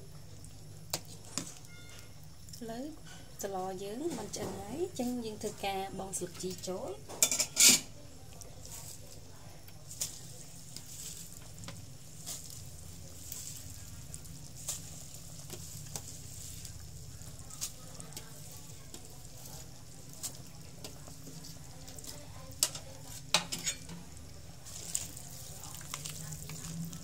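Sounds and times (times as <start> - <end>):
soup bubbling in pot: 6.1 - 27.0.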